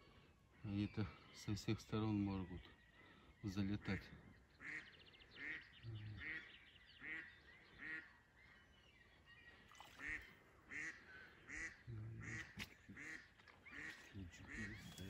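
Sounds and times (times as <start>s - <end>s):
duck quacking: 4.6s - 5.6s, 6.2s - 8.1s, 10.0s - 15.0s.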